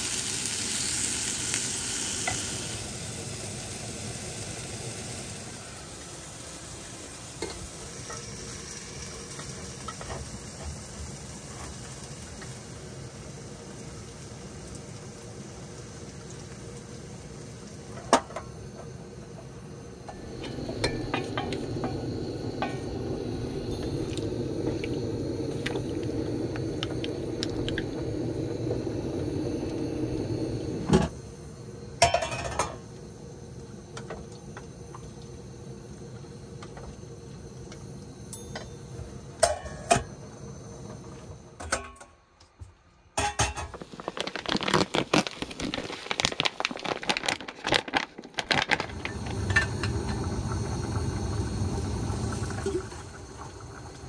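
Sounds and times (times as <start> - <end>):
food sizzling: 0.0 - 18.4, 20.1 - 31.1, 43.7 - 54.0
pots and utensils clinking: 20.1 - 24.9, 32.0 - 32.8, 38.3 - 38.8, 39.4 - 40.1, 43.2 - 44.9
camp stove rushing: 20.1 - 31.1, 43.2 - 54.0.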